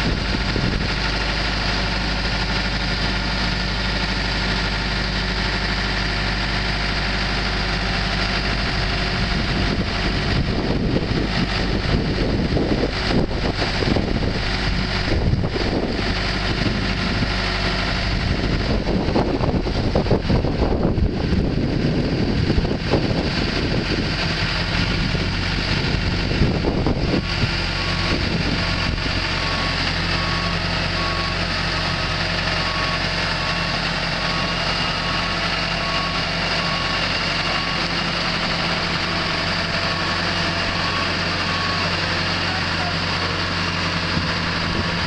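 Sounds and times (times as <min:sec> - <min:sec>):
hoist engine running: 0:00.0 - 0:45.0
warning beeper: 0:34.3 - 0:45.0.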